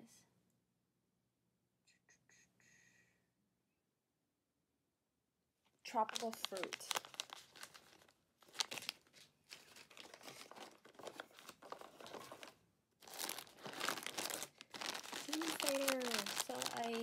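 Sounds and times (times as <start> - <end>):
plastic wrappers crinkling: 5.9 - 17.0.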